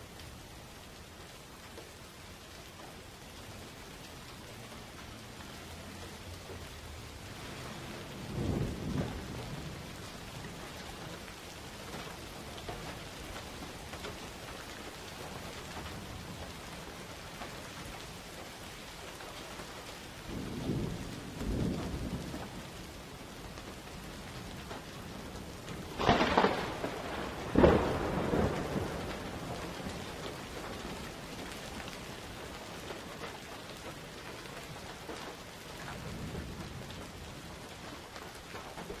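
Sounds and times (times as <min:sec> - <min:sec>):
steady rain: 0:00.0 - 0:39.0
thunder rumbling and clapping: 0:05.4 - 0:14.2, 0:20.2 - 0:39.0.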